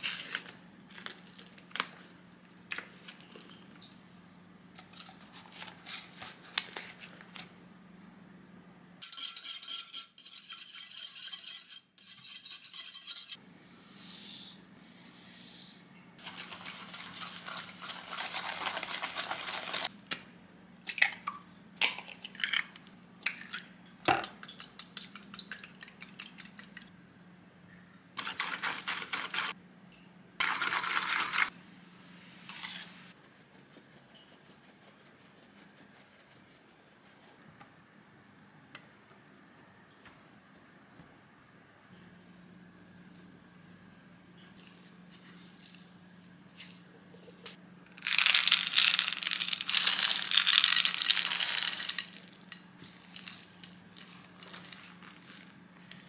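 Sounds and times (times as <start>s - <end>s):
foil wrapper crinkling: 0.0s - 2.0s, 16.2s - 19.9s, 47.9s - 55.5s
flour shaken through sieve: 16.2s - 19.9s, 28.2s - 29.6s, 32.6s - 37.4s, 44.6s - 56.0s
bowls and utensils clinking: 48.0s - 53.4s.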